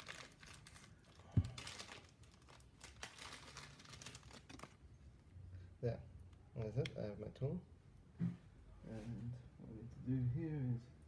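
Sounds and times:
packaging crinkling and rustling: 0.0 - 4.9.

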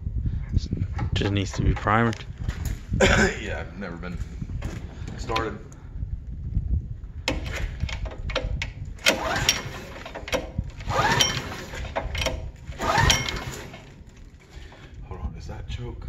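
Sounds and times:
recoil starter pulls: 7.2 - 15.0
engine turning over without catching: 7.3 - 14.8.

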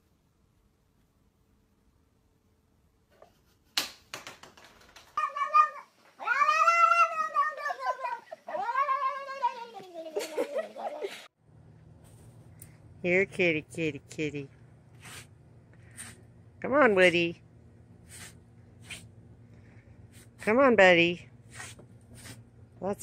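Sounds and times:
cat yowling: 5.2 - 9.8.

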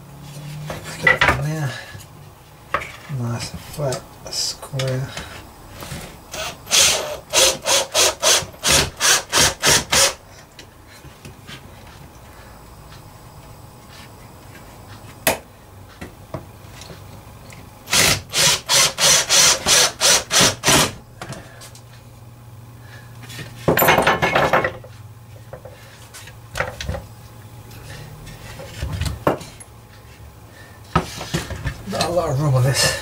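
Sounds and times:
cordless drill: 6.3 - 10.2, 17.9 - 20.9.

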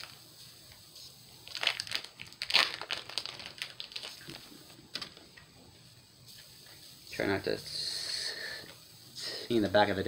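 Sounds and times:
foil wrapper crinkling: 0.0 - 0.2, 1.4 - 5.2.

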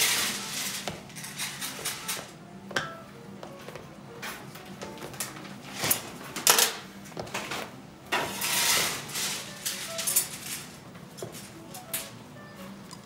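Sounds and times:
tool scraping on metal table: 8.1 - 9.5.

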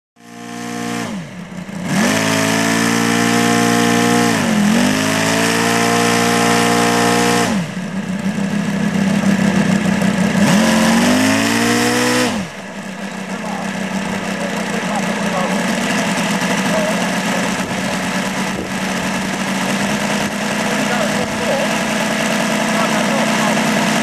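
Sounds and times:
model aircraft engine revving: 0.2 - 24.0.

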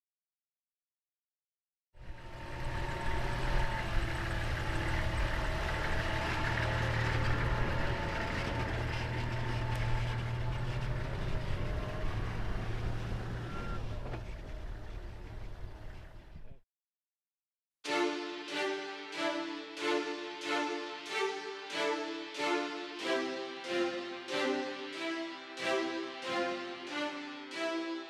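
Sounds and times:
road rumble: 2.0 - 16.6
vehicle engine drone: 2.0 - 16.6.

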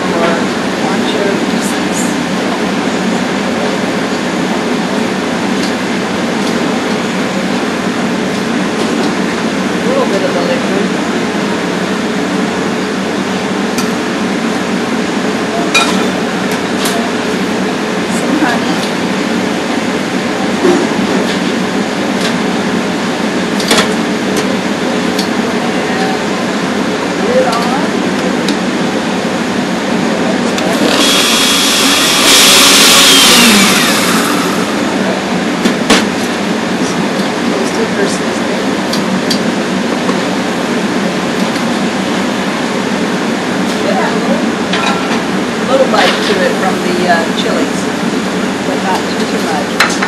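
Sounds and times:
ventilation rushing: 0.0 - 50.0
blender motor whining: 30.4 - 35.5.

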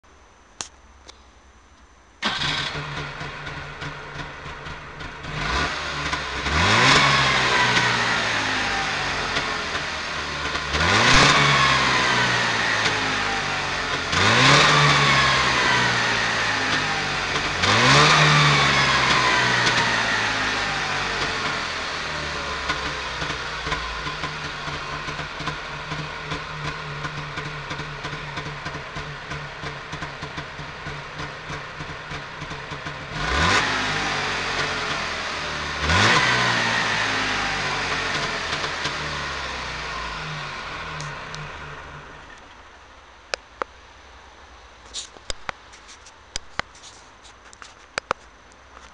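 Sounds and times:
two-stroke engine idling and revving: 2.2 - 42.5.

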